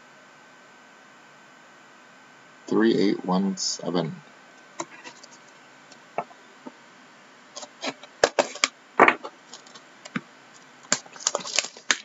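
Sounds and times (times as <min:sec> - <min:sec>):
cardboard box wrapping crackling: 0:10.9 - 0:12.0.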